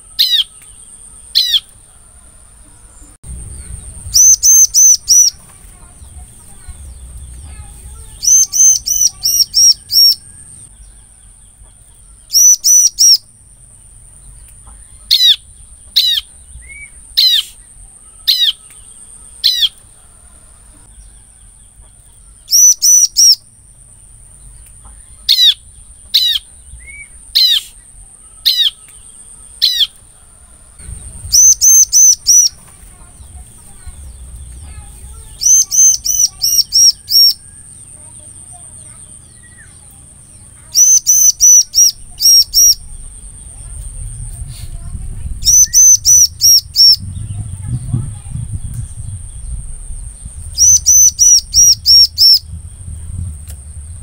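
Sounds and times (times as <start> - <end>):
bird chirping: 0.0 - 54.0
bird downward-sliding notes: 2.9 - 10.6
high-pitched whine: 3.2 - 5.5, 30.8 - 32.6.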